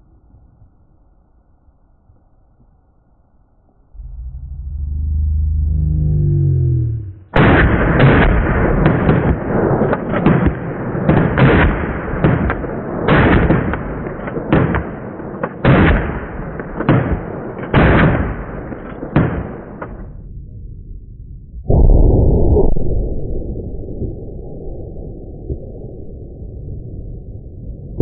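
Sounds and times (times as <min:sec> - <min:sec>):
continuous rumble: 0:03.7 - 0:07.4
loud bangs and blasts: 0:07.3 - 0:20.1.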